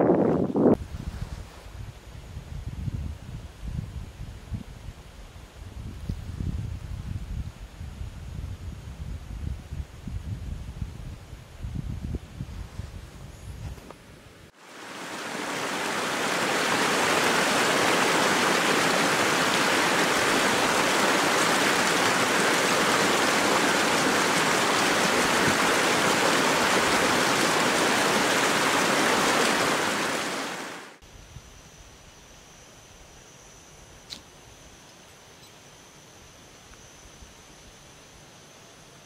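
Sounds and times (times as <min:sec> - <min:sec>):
stream rushing over rocks: 0:14.6 - 0:31.0.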